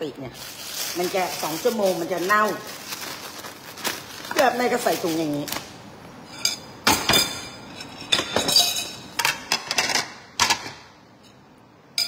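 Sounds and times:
plastic bag and bowl clatter: 0.4s - 5.7s.

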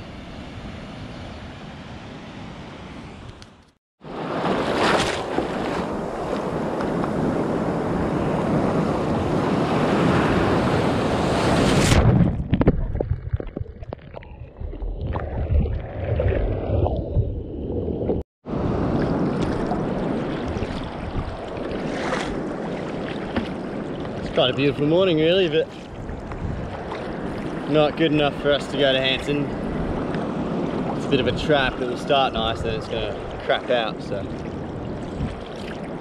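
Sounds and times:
waves and churning water: 4.0s - 12.2s, 14.0s - 36.0s
wind buffeting microphone: 14.2s - 36.0s.

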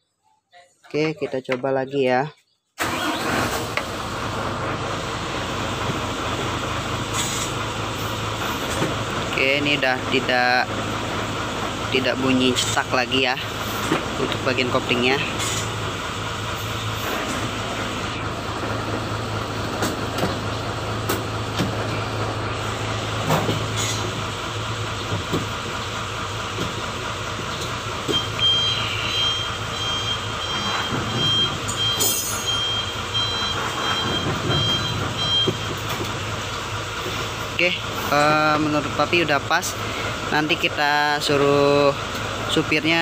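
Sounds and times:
diesel engine idling: 2.8s - 43.0s
reversing beeper beeps: 28.1s - 35.7s.

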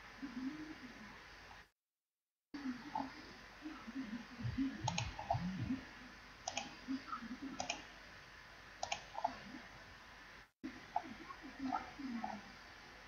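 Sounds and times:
room noise: 2.6s - 13.0s
mouse button clicks: 8.8s - 9.3s.

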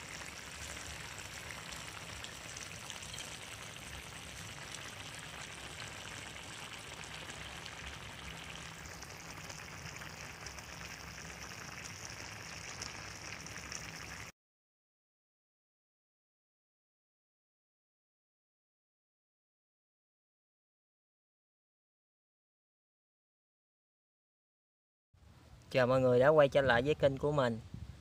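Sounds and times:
food sizzling in a wok: 0.0s - 14.3s.

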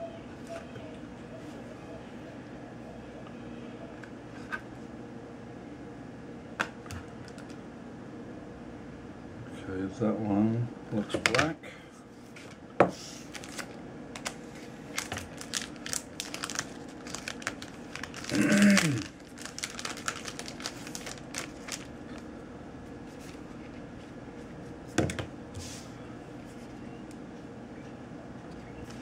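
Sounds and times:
plastic wrapper crinkling: 13.3s - 22.3s.

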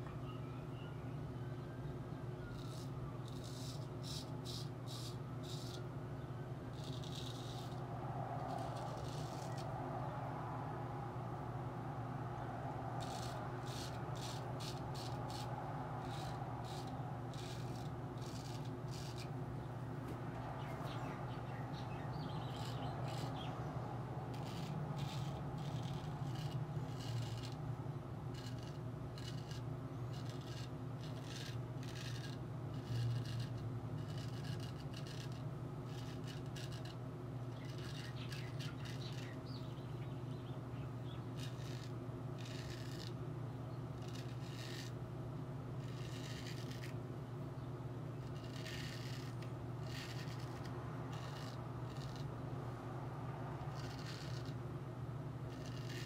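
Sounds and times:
low hum: 0.0s - 56.0s
razor rasping through stubble: 2.4s - 5.9s, 6.7s - 10.2s, 12.7s - 19.4s, 20.0s - 39.9s, 41.0s - 43.2s, 43.9s - 45.0s, 45.8s - 47.0s, 48.2s - 52.4s, 53.6s - 54.6s, 55.5s - 56.0s.

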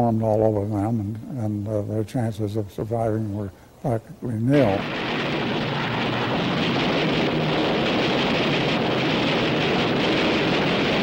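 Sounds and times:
wind-like rush of noise: 4.6s - 11.0s
propeller aircraft engines droning: 4.8s - 11.0s.

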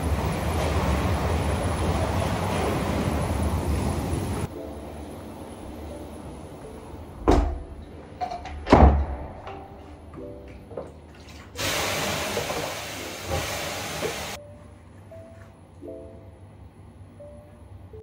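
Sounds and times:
water hissing on hot stones: 11.6s - 14.4s.

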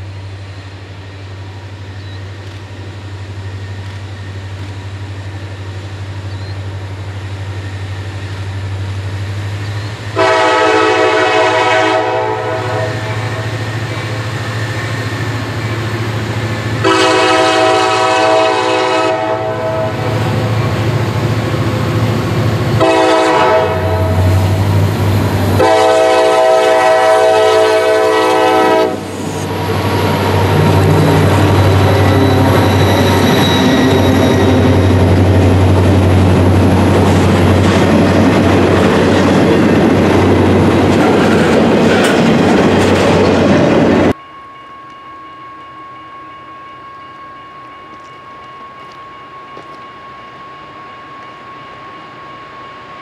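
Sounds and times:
train wheels clicking on rail joints: 0.0s - 10.6s, 27.6s - 44.2s, 46.9s - 50.4s
diesel locomotive engine under load: 0.0s - 53.0s
distant train: 0.0s - 53.0s
train horn blasts: 10.1s - 14.1s, 16.8s - 20.7s, 22.8s - 24.7s, 25.6s - 29.2s.

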